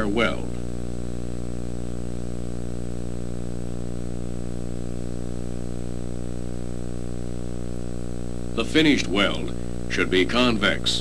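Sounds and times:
steady electrical hum: 0:00.0 - 0:11.0.

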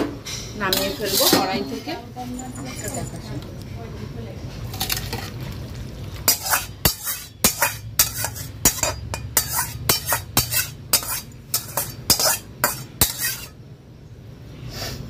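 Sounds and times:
metal spatula scraping a pan: 0:00.3 - 0:02.3, 0:06.2 - 0:13.6.

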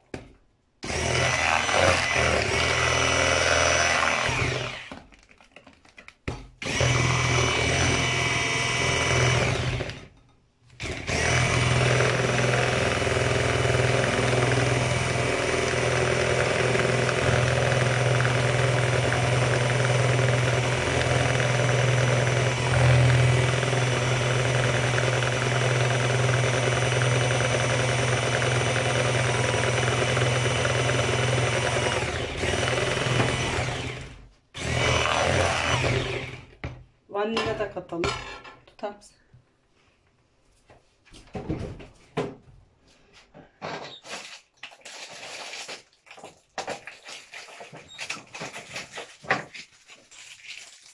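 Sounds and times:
electric hand mixer beating batter: 0:00.8 - 0:05.0, 0:06.6 - 0:10.0, 0:10.8 - 0:36.6.

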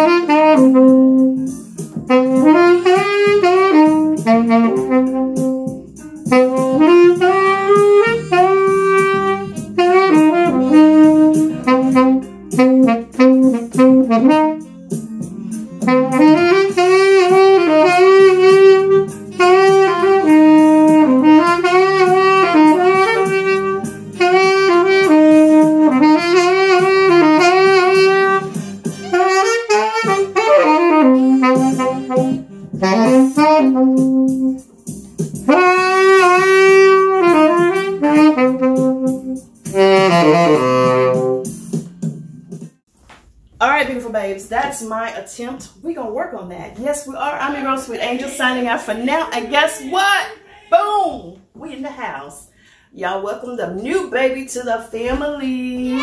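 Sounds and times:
tenor saxophone melody: 0:00.0 - 0:41.7, 0:55.8 - 0:56.0.

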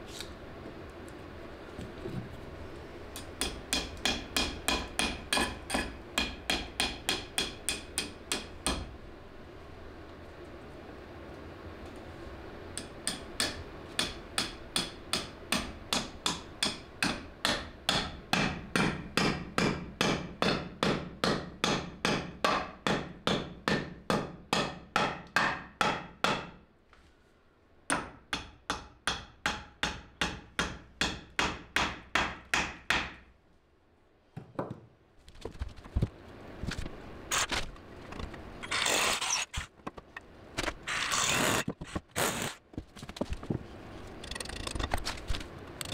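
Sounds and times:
wood knocking and scraping: 0:34.4 - 0:36.9, 0:39.5 - 0:40.8.

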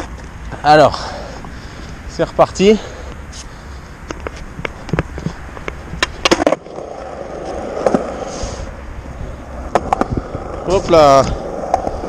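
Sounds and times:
skateboard wheels rumbling: 0:00.0 - 0:12.0.

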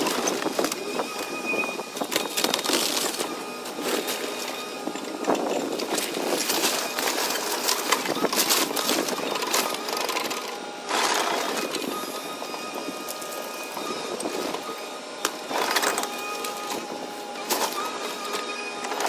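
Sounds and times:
wood cracking and splintering: 0:00.0 - 0:12.0
excavator engine running: 0:00.0 - 0:19.0.

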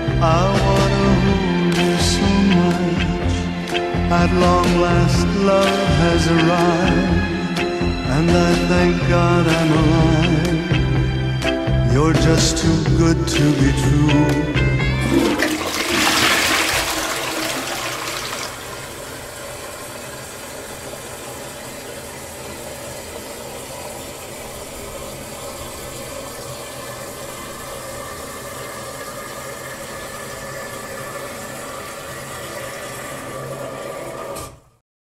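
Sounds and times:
toilet flushing: 0:14.8 - 0:34.8.

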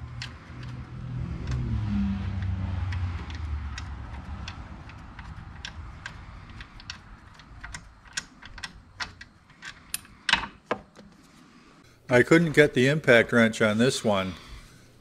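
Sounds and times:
metallic clicks of tools: 0:00.0 - 0:10.6.

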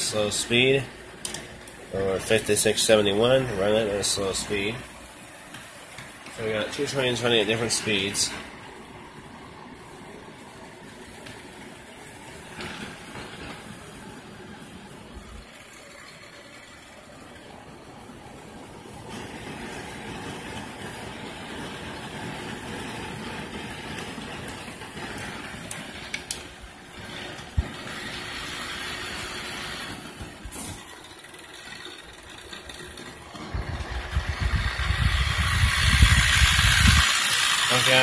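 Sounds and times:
model train motor whirring: 0:00.0 - 0:38.0
loud low rumbling: 0:33.5 - 0:37.4.

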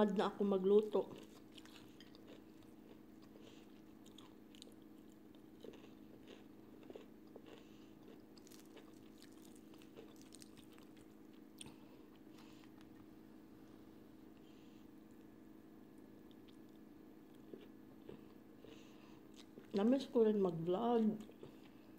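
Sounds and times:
steady low hum: 0:00.0 - 0:21.9
faint chewing: 0:01.0 - 0:13.1, 0:15.9 - 0:19.9, 0:21.0 - 0:21.9
crunches of fried chicken: 0:07.0 - 0:12.8.

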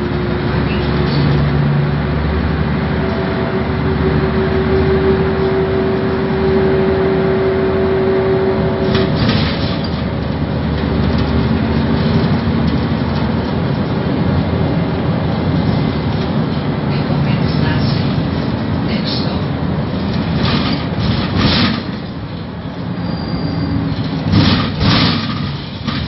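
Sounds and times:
bus engine and road noise: 0:00.0 - 0:26.0
steady whine: 0:01.1 - 0:18.4.

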